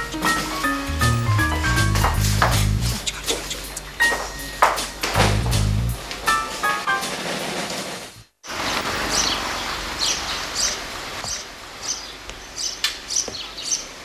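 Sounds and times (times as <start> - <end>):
music: 0.0 - 7.1
footsteps on stone steps: 1.7 - 5.7
small birds chirping: 2.8 - 4.4, 8.5 - 14.0.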